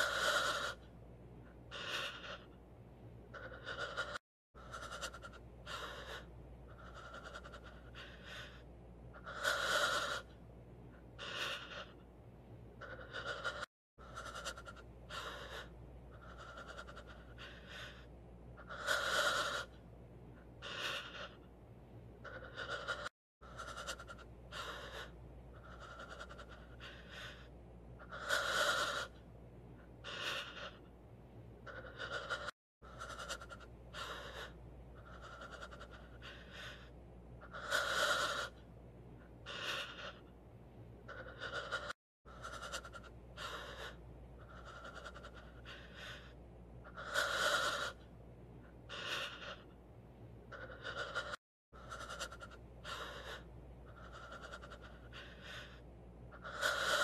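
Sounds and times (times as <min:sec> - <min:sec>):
person panting: 0:00.0 - 0:00.9, 0:01.5 - 0:02.6, 0:03.3 - 0:10.4, 0:11.0 - 0:12.1, 0:12.8 - 0:19.8, 0:20.4 - 0:21.5, 0:22.2 - 0:29.2, 0:29.8 - 0:30.9, 0:31.6 - 0:38.6, 0:39.2 - 0:40.4, 0:41.1 - 0:48.0, 0:48.6 - 0:49.8, 0:50.5 - 0:57.0
gasping breath: 0:01.7 - 0:02.6, 0:03.3 - 0:10.4, 0:11.2 - 0:12.0, 0:12.8 - 0:19.8, 0:20.4 - 0:21.5, 0:22.2 - 0:29.2, 0:30.0 - 0:30.9, 0:31.6 - 0:38.6, 0:39.2 - 0:40.3, 0:41.1 - 0:48.0, 0:48.6 - 0:49.8, 0:50.5 - 0:57.0.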